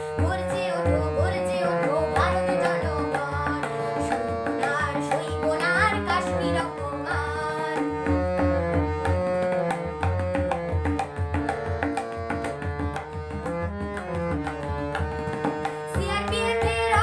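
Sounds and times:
girl singing: 0.0s - 8.5s, 15.8s - 17.0s
harmonium: 0.0s - 17.0s
tabla rhythm: 0.0s - 17.0s.

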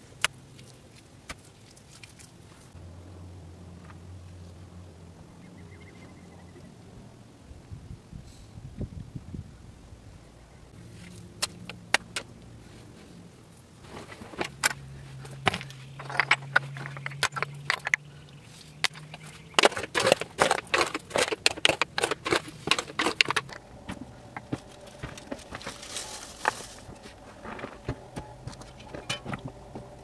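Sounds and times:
stones clacking and scraping: 13.8s - 30.0s.

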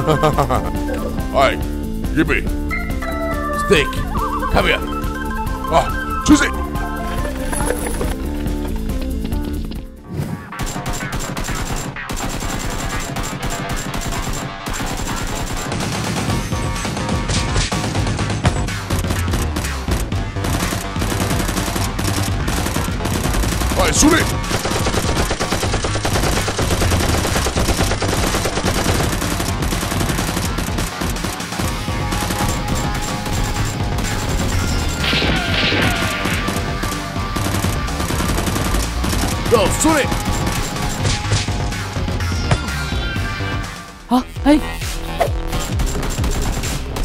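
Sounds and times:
background music: 0.0s - 47.0s
rapid blaster gunfire: 10.5s - 18.3s, 18.9s - 41.5s, 45.5s - 47.0s.

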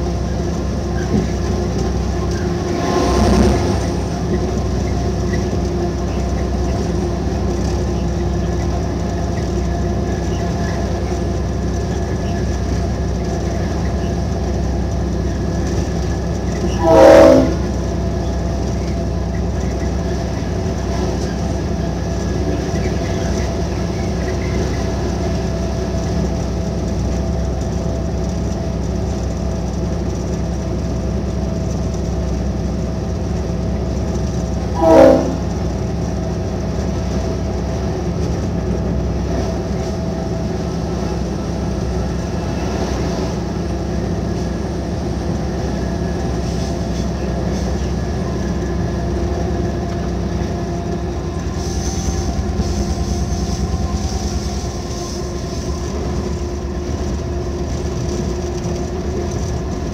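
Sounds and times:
locomotive engine drone: 0.0s - 59.9s
train horn blasts: 16.6s - 18.0s, 34.6s - 35.9s.

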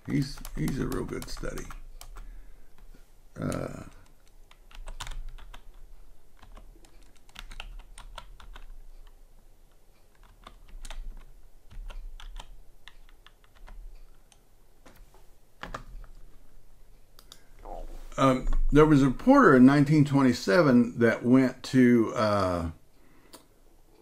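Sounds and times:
typing on computer keyboard: 0.0s - 9.2s, 10.1s - 14.4s.

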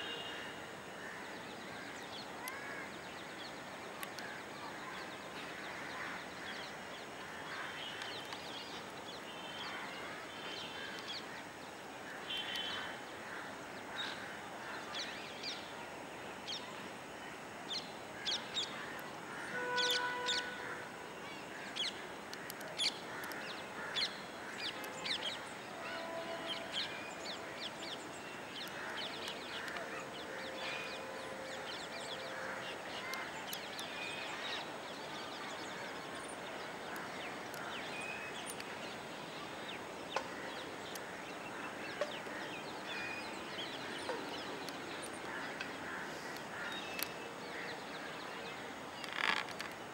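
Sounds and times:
steady background hiss: 0.0s - 49.9s
birds chirping and calling: 18.4s - 20.8s.

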